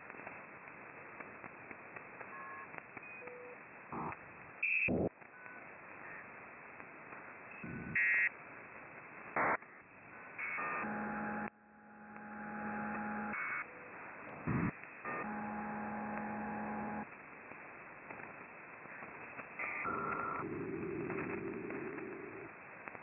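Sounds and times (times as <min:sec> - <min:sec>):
radio static hiss: 0:00.0 - 0:10.8, 0:13.0 - 0:23.0
steady pair of radio tones: 0:19.7 - 0:22.5.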